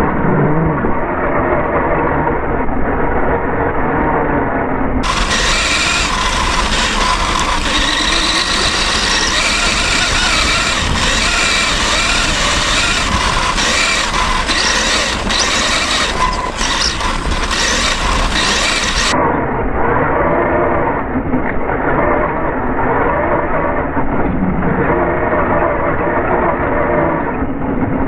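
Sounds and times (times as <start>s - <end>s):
motor whine: 5.0s - 19.2s
tyre and wind noise: 5.0s - 19.2s.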